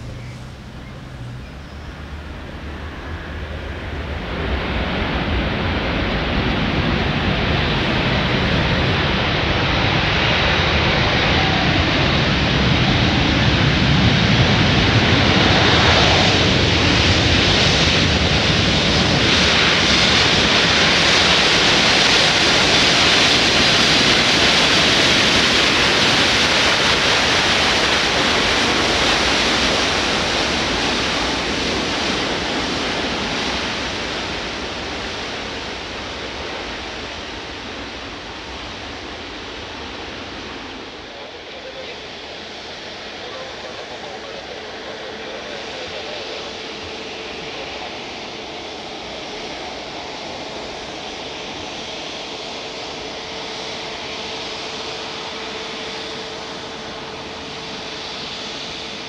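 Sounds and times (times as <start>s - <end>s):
low rumble: 0.0s - 16.5s
jet engine reverse thrust roar: 0.0s - 59.0s.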